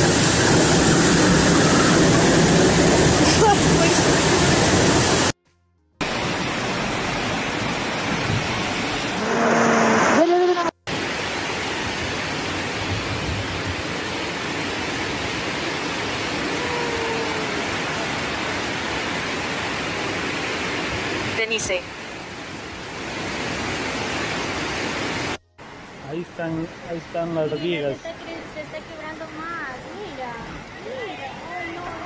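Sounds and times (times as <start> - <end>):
floodwater rushing: 0.0 - 5.4, 6.0 - 32.0
person calling out: 16.4 - 18.1.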